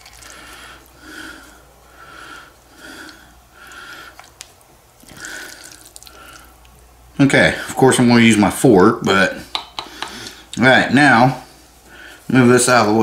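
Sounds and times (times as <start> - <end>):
person breathing heavily through nose: 0.2 - 4.3.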